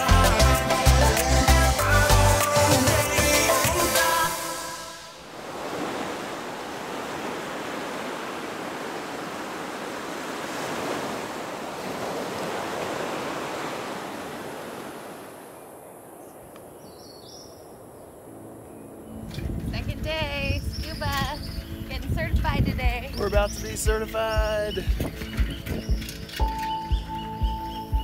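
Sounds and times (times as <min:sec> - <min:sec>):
ocean waves breaking on beach: 0:02.4 - 0:16.5.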